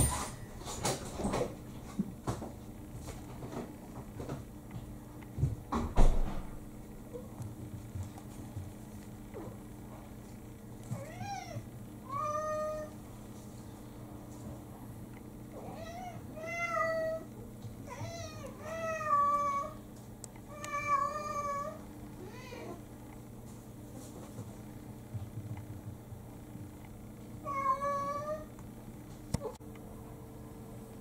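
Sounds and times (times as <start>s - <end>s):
low electrical hum: 0.0s - 31.0s
cats meowing: 10.9s - 12.9s, 15.6s - 19.8s, 20.5s - 22.8s, 27.4s - 28.5s.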